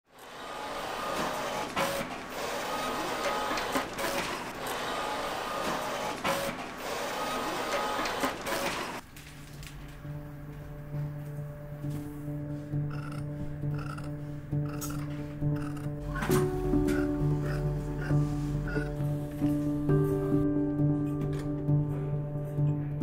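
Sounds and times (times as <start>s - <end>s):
plotter carriage whirring: 0.2s - 9.0s.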